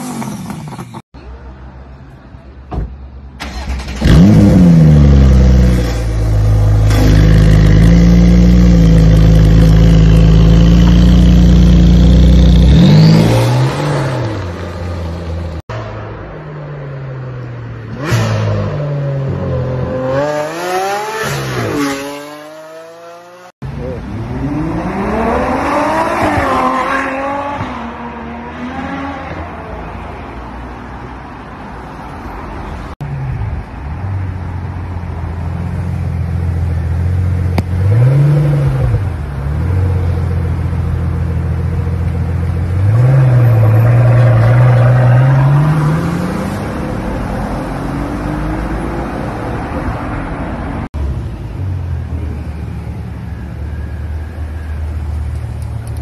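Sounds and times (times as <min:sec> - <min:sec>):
car engine idling and revving: 0:03.3 - 0:16.3, 0:32.9 - 0:56.0.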